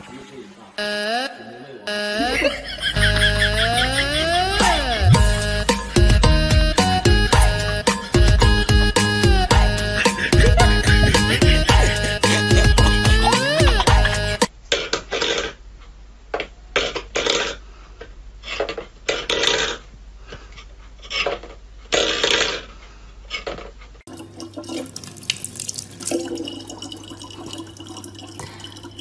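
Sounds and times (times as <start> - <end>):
tap water running: 24.1 - 29.0.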